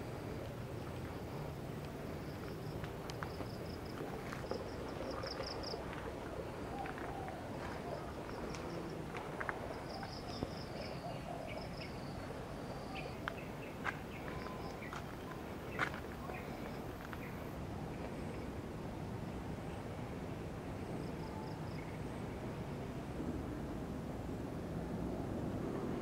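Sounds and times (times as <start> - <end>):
insects chirping: 0.0 - 17.6
outdoor background noise: 0.0 - 26.0.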